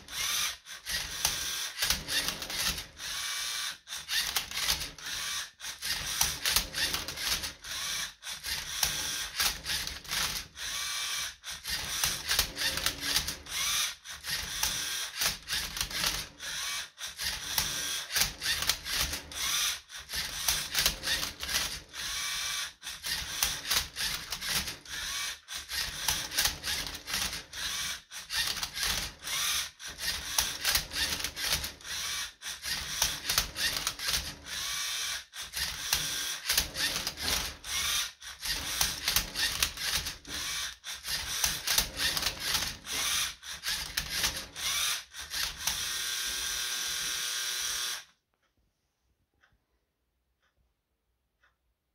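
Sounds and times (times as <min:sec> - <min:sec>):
robot motors whirring: 0:00.0 - 0:48.0
plastic clicks and clacks: 0:05.8 - 0:07.6, 0:11.6 - 0:13.6, 0:25.6 - 0:27.5, 0:32.6 - 0:34.5, 0:35.4 - 0:46.0.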